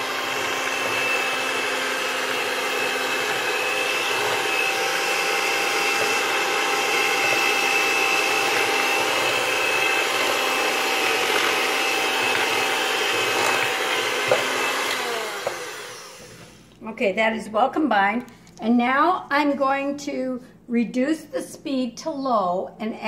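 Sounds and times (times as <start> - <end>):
electric hand mixer whirring: 0.0 - 16.6.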